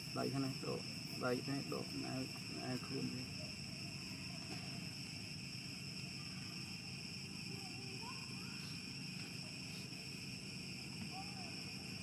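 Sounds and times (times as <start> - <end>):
shrill insect chorus: 0.0 - 12.0.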